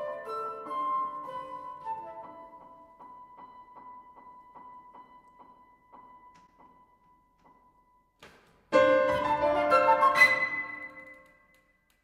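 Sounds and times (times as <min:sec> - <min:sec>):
flute and piano flourish: 0:00.0 - 0:06.1, 0:08.8 - 0:11.6.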